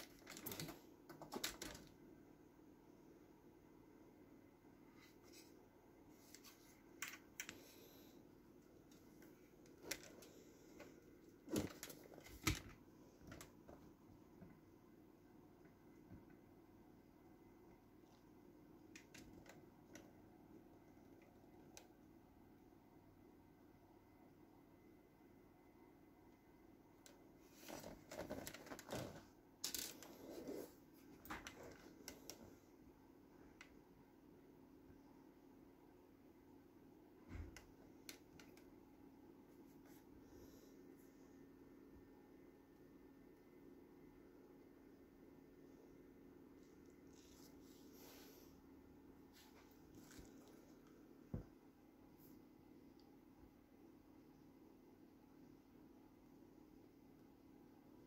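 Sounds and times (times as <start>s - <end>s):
faint low hum: 0.0s - 58.0s
rustling: 49.3s - 51.4s.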